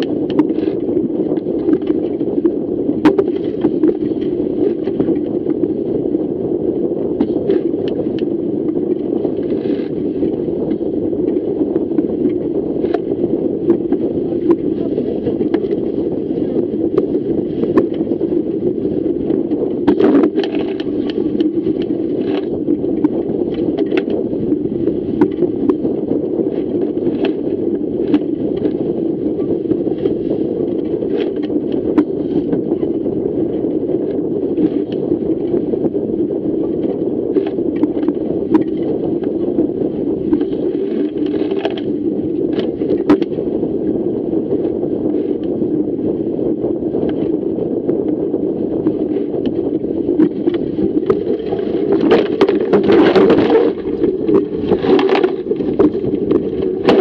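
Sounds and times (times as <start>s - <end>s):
rush of wind and water: 0.0s - 57.0s.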